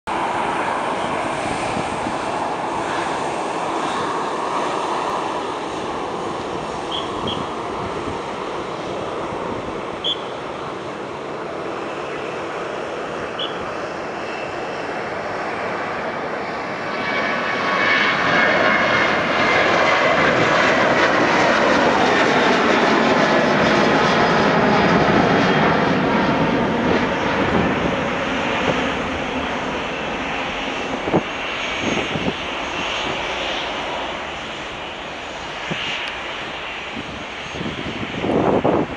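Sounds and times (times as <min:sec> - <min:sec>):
jet engines roaring overhead: 0:00.1 - 0:38.9.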